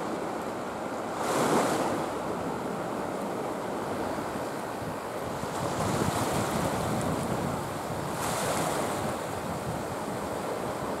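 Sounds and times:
wind noise on microphone: 0:04.0 - 0:11.0.

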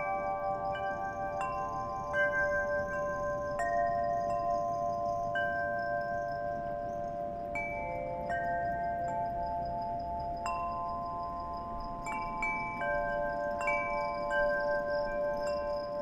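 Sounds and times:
metal chimes ringing: 0:00.0 - 0:16.0.

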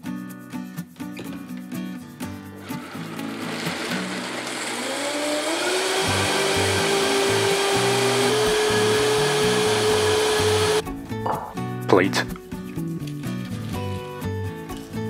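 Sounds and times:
blender motor whine: 0:02.6 - 0:10.8.

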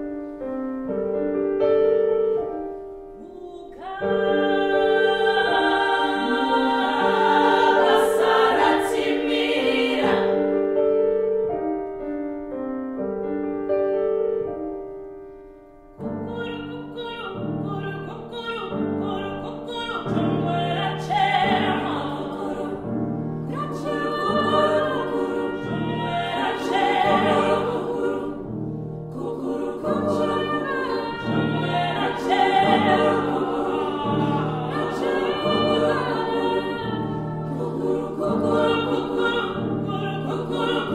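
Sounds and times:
mixed choir singing: 0:03.6 - 0:10.9, 0:18.3 - 0:40.9.

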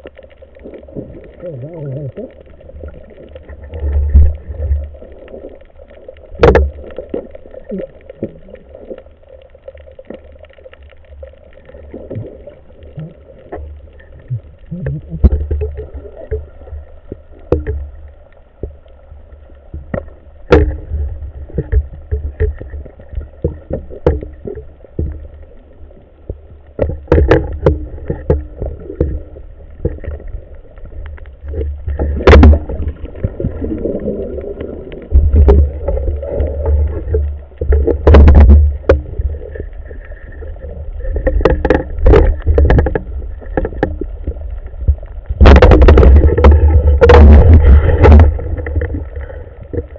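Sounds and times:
muffled underwater rumble: 0:00.0 - 0:49.9
sharp clicks and knocks: 0:06.2 - 0:07.3, 0:19.7 - 0:25.3, 0:26.3 - 0:29.2, 0:29.8 - 0:33.3, 0:35.1 - 0:39.3, 0:41.2 - 0:49.9.

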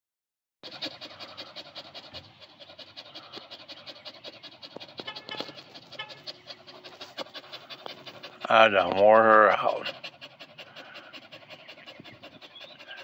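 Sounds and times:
dog panting: 0:00.6 - 0:13.0.

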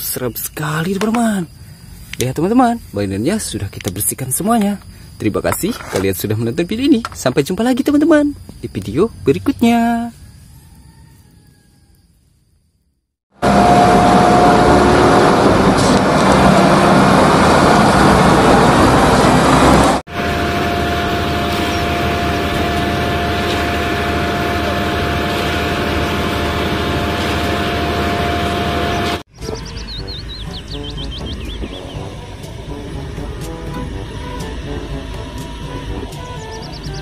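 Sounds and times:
engine with steady whine: 0:13.3 - 0:37.0
heavy diesel engine running: 0:13.3 - 0:37.0.

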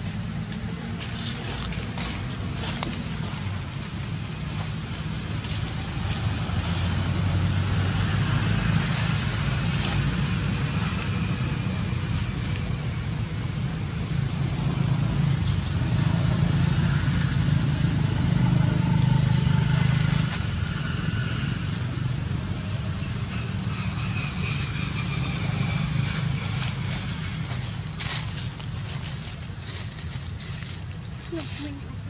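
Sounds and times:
steady low rumble: 0:00.0 - 0:32.0
faint rustles: 0:26.1 - 0:32.0.

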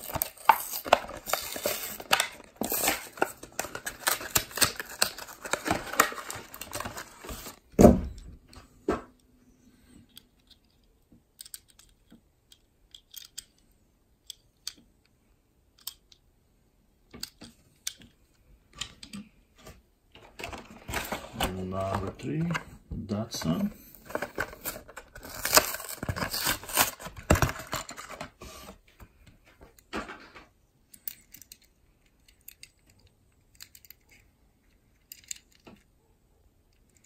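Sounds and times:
toy car clicks: 0:11.4 - 0:13.6.

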